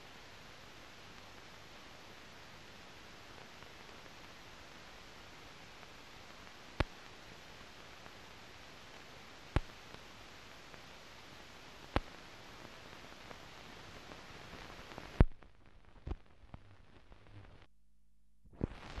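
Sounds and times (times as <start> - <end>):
film surface hiss: 0.0 - 17.7, 18.5 - 19.0
clicks and pops: 15.2 - 16.7.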